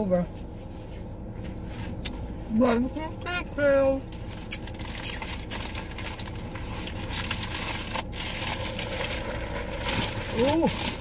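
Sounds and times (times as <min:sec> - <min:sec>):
steady low hum: 0:00.0 - 0:11.0
paper wrappers crumpling: 0:04.2 - 0:11.0.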